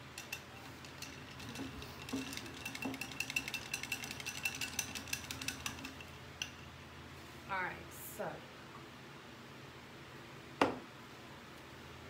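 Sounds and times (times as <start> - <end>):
paintbrushes clattering in a jar: 0.0 - 6.5.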